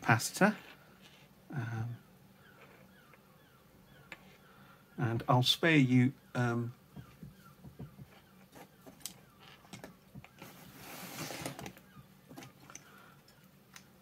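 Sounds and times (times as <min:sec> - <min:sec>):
foam sliding across mat: 0:10.4 - 0:11.6.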